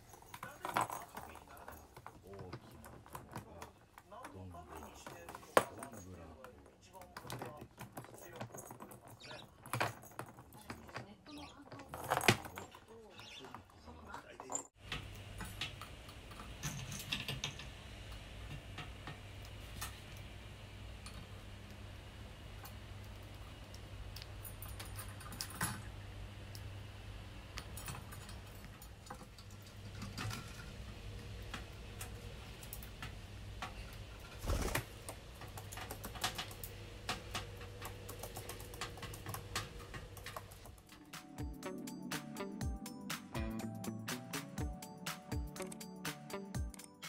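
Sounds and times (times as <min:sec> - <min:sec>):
beaks and claws tapping: 0:06.9 - 0:20.2, 0:27.5 - 0:41.5
steady low hum: 0:14.8 - 0:41.6.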